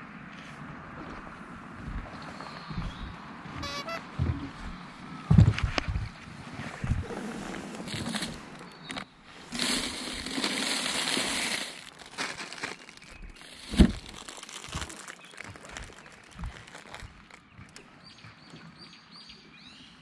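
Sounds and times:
plastic wrapper crinkling: 9.5 - 17.4.

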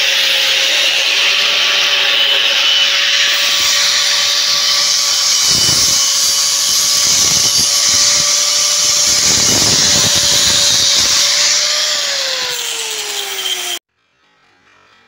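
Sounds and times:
angle grinder grinding steel: 0.0 - 13.8
faint music: 13.9 - 15.0.

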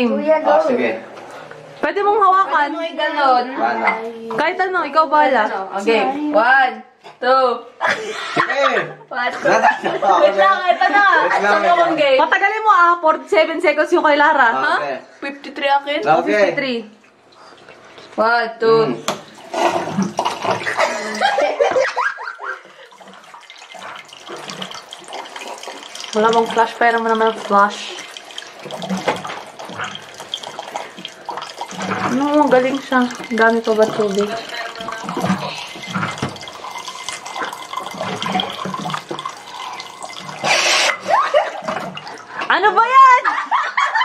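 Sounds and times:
people laughing loudly: 7.8 - 12.0, 20.7 - 22.8, 41.0 - 41.6, 43.2 - 44.0
water running into a glass: 19.1 - 42.4
person drinking through a straw: 19.3 - 21.2, 33.1 - 42.0.

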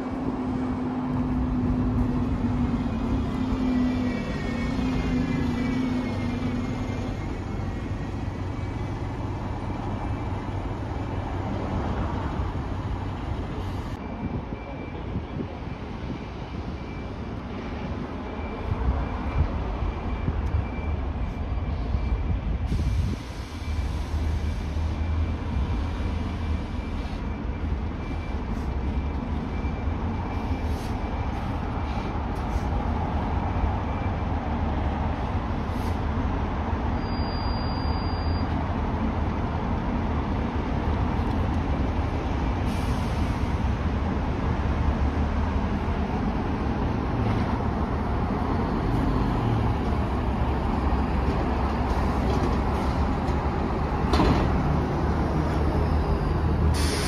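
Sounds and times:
diesel bus engines running: 0.0 - 57.0
air brakes hissing: 22.6 - 25.1, 30.4 - 32.8, 35.6 - 36.1, 42.5 - 43.8, 55.8 - 57.0.

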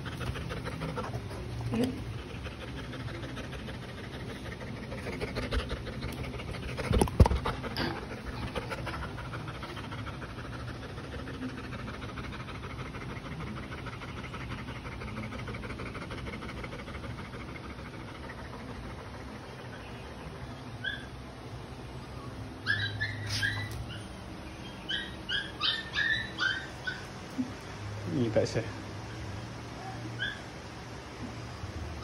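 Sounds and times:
dog panting: 0.0 - 20.4.

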